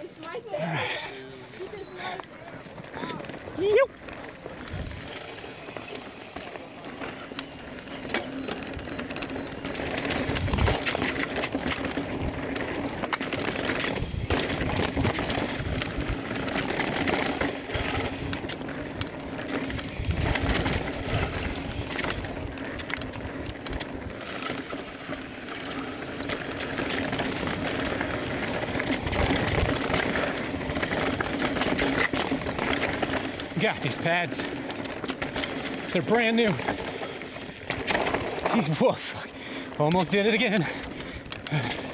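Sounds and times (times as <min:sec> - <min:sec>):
bike rattling on rough trail: 0:00.0 - 0:41.9
bike disc brakes squealing: 0:01.7 - 0:02.6, 0:04.6 - 0:11.1, 0:13.7 - 0:18.4, 0:19.8 - 0:22.3, 0:24.2 - 0:27.1, 0:28.1 - 0:34.6, 0:35.3 - 0:38.8.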